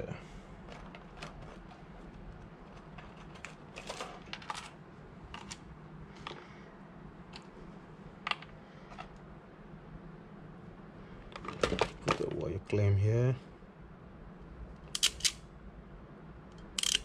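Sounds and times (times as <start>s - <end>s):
wires and small parts rattling: 0.0s - 6.4s, 8.2s - 9.2s, 11.2s - 12.5s, 16.6s - 17.0s
faint low hum: 0.0s - 17.0s.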